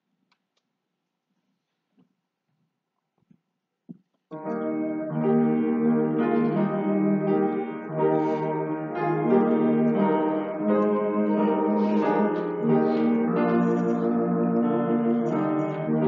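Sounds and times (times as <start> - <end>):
slow instrumental chords: 4.4 - 16.0.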